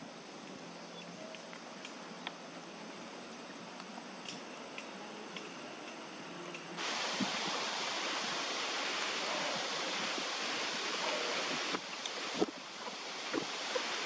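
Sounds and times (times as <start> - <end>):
rushing wind: 6.8 - 14.0.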